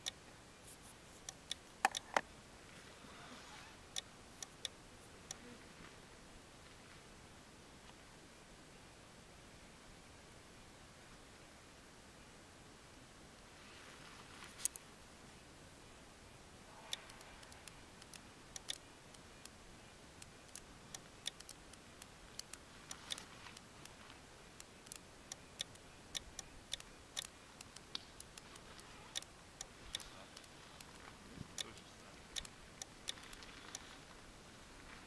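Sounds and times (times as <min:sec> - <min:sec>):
radio button and knob clicks: 0:01.5 - 0:02.3.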